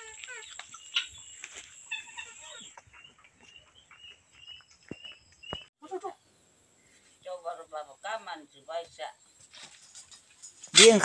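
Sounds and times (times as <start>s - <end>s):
chickens chirping and clucking: 0.0s - 5.7s.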